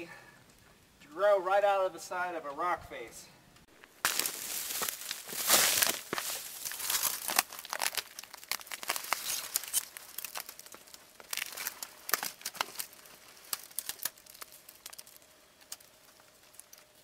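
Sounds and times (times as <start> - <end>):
dry twigs crackling and rustling: 3.7 - 17.0.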